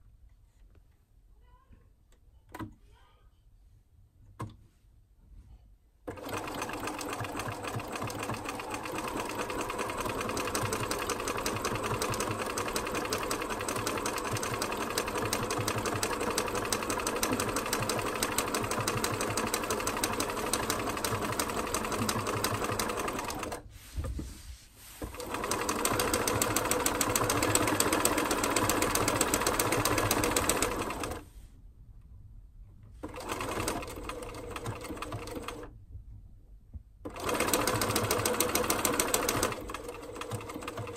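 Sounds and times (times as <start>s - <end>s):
sewing machine stitching: 6.1s - 23.6s, 25.0s - 31.3s, 33.0s - 35.7s, 37.0s - 40.9s.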